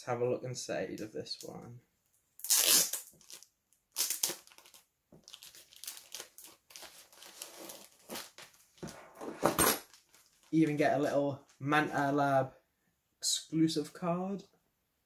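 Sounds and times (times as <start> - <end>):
plastic sleeve crinkling: 2.4 - 9.0, 9.8 - 10.6.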